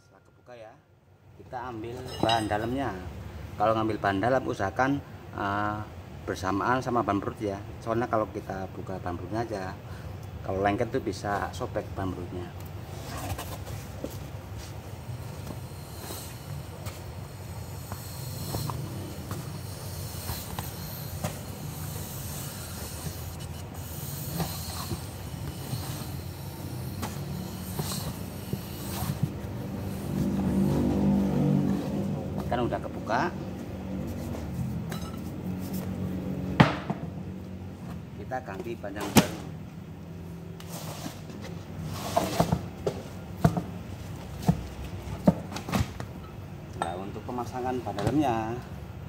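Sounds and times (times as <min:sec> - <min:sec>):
steady low hum: 0:00.9 - 0:38.9
rubber scraping inside tyre: 0:12.9 - 0:32.7, 0:40.6 - 0:42.6.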